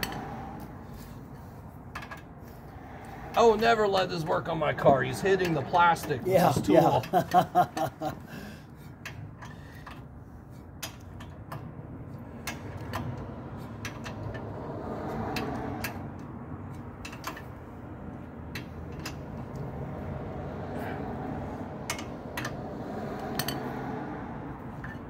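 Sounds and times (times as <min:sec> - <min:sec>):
wrench clicking on bolts: 0:01.8 - 0:02.4, 0:08.9 - 0:17.6, 0:18.4 - 0:19.9, 0:21.8 - 0:23.9, 0:24.6 - 0:25.0.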